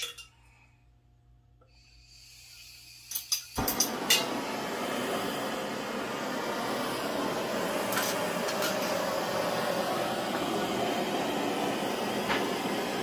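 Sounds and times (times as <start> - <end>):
propane torch hissing roar: 1.7 - 13.0.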